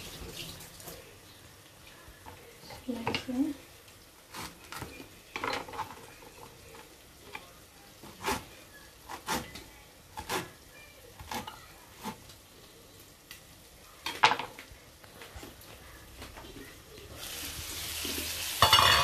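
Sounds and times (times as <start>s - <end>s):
knife chopping on wooden board: 10.2s - 10.5s.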